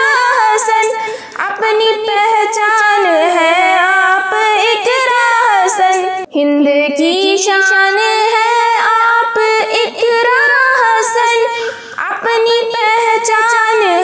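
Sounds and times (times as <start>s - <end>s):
girl singing: 0.0s - 14.0s.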